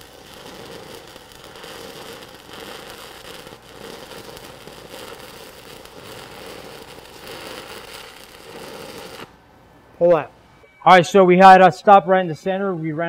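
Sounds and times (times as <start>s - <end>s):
welding arc crackling: 0.0s - 9.4s.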